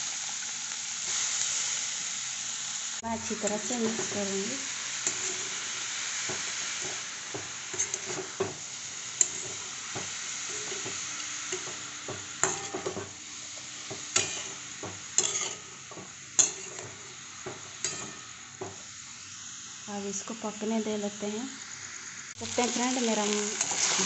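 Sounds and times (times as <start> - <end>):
mushrooms sizzling in a pan: 0.0 - 24.0
spatula scraping a pan: 3.4 - 8.6, 9.2 - 13.2, 13.9 - 18.8, 23.4 - 24.0
spatula clinking against pan: 12.4 - 13.1, 14.1 - 14.6, 15.2 - 15.7, 17.8 - 18.3.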